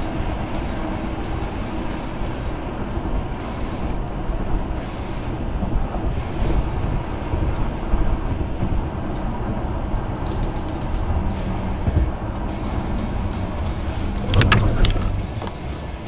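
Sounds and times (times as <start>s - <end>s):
car road and wind noise: 0.0s - 16.0s.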